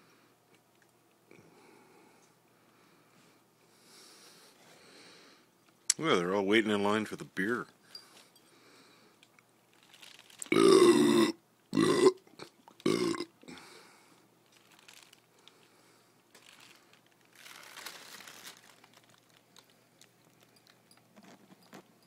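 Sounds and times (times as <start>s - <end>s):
loud burps: 10.5s - 13.4s.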